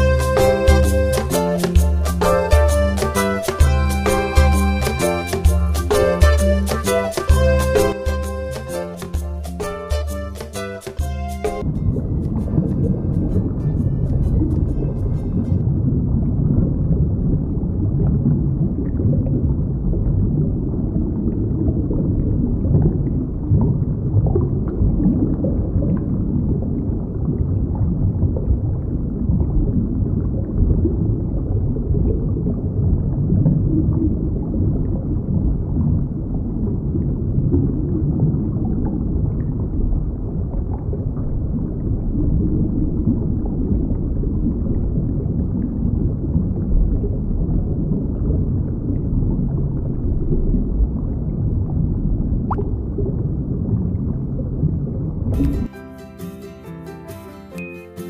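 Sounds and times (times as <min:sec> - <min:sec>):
underwater low rumble: 0:11.1 - 0:55.7.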